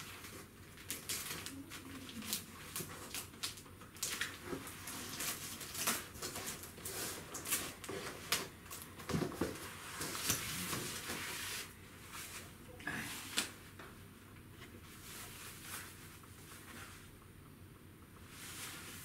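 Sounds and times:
plastic packaging crinkling: 0:00.0 - 0:08.9.

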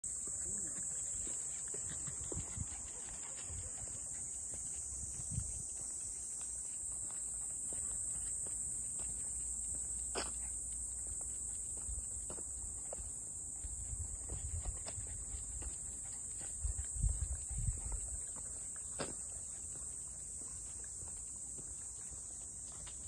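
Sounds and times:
high-pitched insect drone: 0:00.1 - 0:18.1
footsteps on asphalt: 0:01.2 - 0:17.4.

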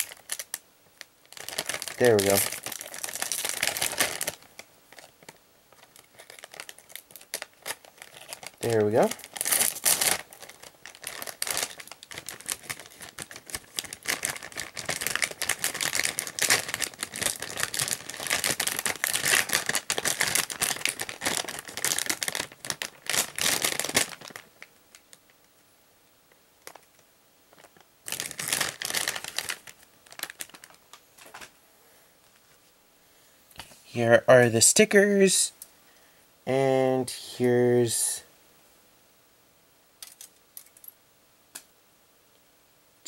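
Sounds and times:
plastic bag crinkling: 0:00.0 - 0:25.3, 0:26.6 - 0:31.5.

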